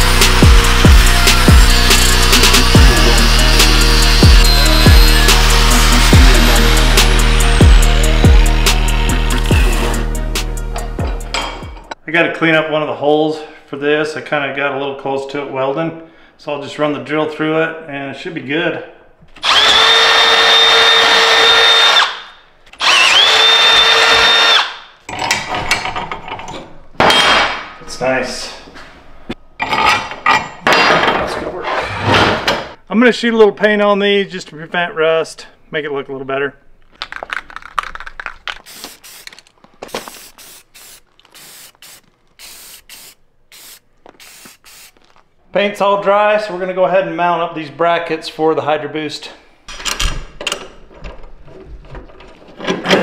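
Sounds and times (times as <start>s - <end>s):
cordless drill whining: 0.7s - 8.6s, 19.4s - 24.9s
spray can rattling: 37.0s - 45.2s
spray can hissing bursts: 38.5s - 45.1s.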